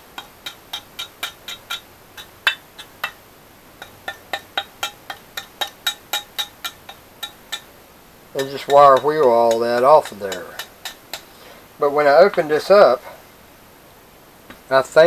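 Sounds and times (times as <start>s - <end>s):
steel pick chipping rust off metal: 0.0s - 3.2s, 3.8s - 7.7s, 8.4s - 11.4s.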